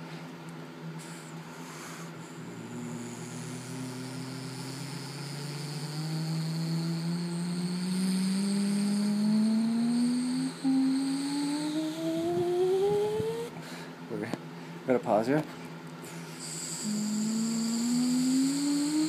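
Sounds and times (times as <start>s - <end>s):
man imitating jet engines: 1.1s - 13.6s, 16.2s - 19.0s.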